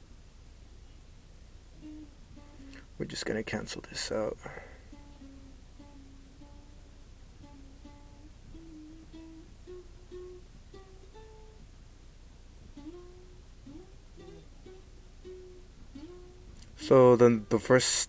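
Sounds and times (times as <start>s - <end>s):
plucked string melody: 1.8s - 3.2s, 4.6s - 11.7s, 12.6s - 17.7s.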